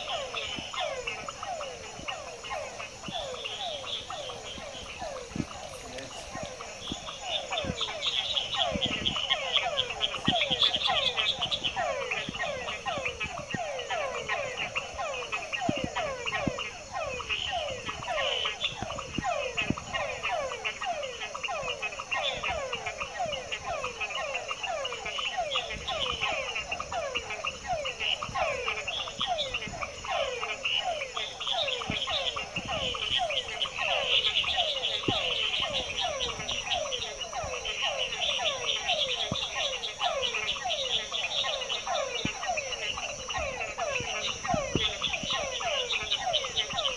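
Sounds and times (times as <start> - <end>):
frogs calling: 0.0 - 46.9.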